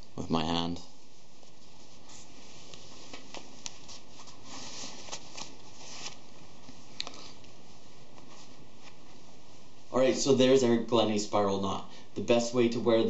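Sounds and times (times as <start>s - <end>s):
steady hiss: 0.0s - 13.0s
fabric rustling: 0.9s - 10.3s.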